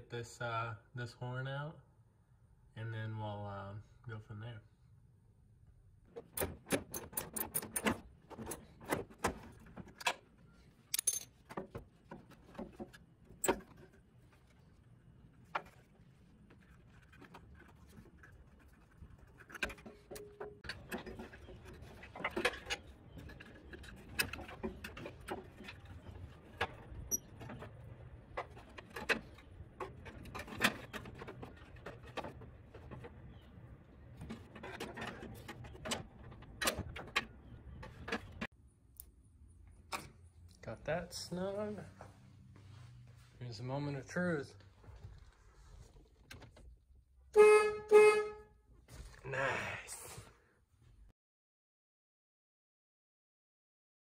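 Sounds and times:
metal hand tools clinking: 0:10.9 - 0:11.4.

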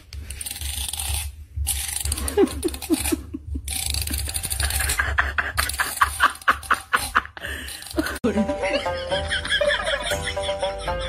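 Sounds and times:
finger running along comb teeth: 0:00.1 - 0:08.2.

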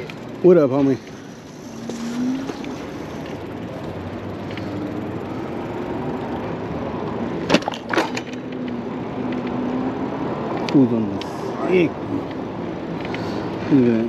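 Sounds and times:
bike rolling over pavement: 0:00.0 - 0:09.6.

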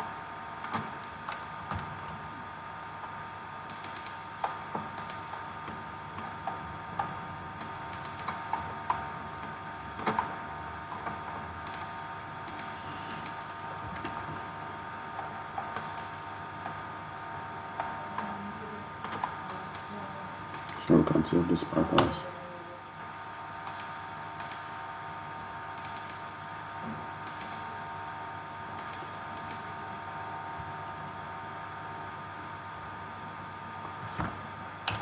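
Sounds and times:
steady background hum: 0:00.0 - 0:35.0
computer mouse and keyboard clicks: 0:03.7 - 0:06.6, 0:07.6 - 0:10.3, 0:10.9 - 0:13.4, 0:15.1 - 0:16.8, 0:20.5 - 0:20.9, 0:23.6 - 0:24.6, 0:25.8 - 0:26.2, 0:27.2 - 0:27.6, 0:28.8 - 0:29.6.

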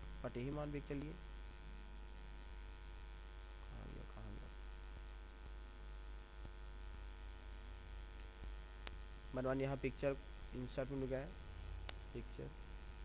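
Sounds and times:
electrical mains hum: 0:00.0 - 0:13.0
quiet hiss: 0:00.0 - 0:13.0.

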